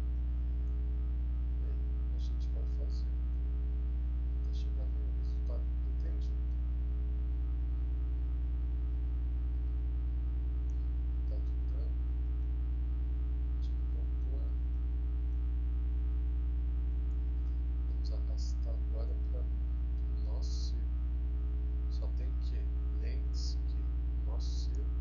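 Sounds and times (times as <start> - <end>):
mains hum: 0.0 - 25.0.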